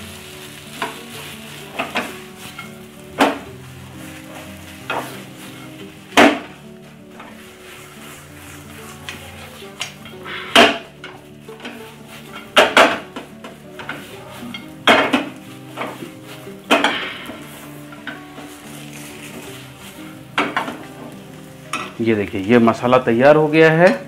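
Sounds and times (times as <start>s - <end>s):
spatula stirring mashed potato: 0.2s - 6.1s, 6.9s - 10.2s, 11.0s - 16.7s
spatula knocking on pan: 12.3s - 16.0s.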